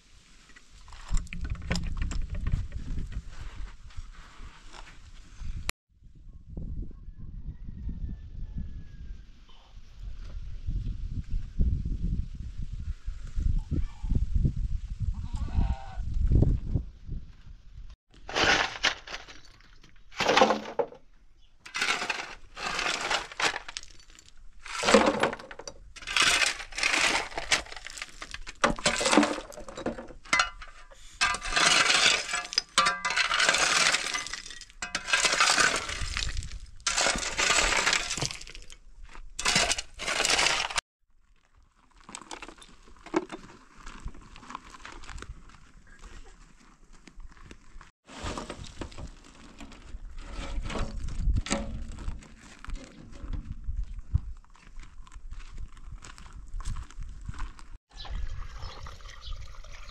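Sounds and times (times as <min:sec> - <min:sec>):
cracking and crunching: 0:18.1 - 0:21.0, 0:21.7 - 0:45.8.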